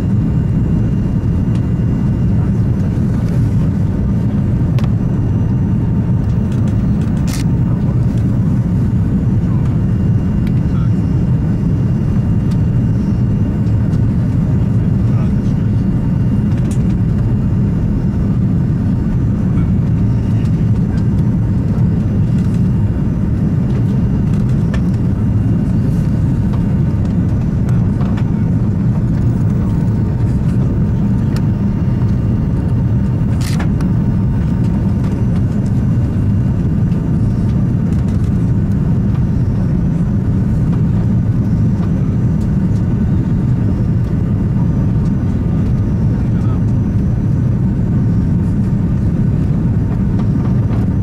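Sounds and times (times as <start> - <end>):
airliner cabin engine rumble: 0.0 - 51.0.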